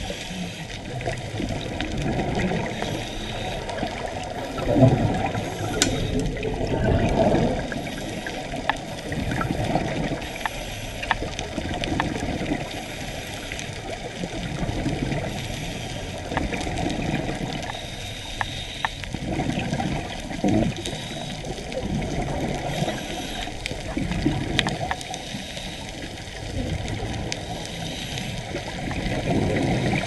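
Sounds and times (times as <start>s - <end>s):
water hiss: 0.0s - 1.2s, 2.5s - 11.8s, 15.1s - 16.6s, 17.3s - 19.1s, 20.6s - 21.7s, 22.5s - 30.0s
sharp clicks: 5.6s - 6.3s.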